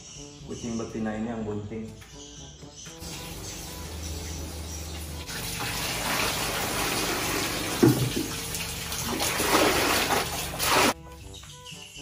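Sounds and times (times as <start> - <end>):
water pouring into bucket: 3.0 - 11.0
knock on pot: 7.8 - 8.3.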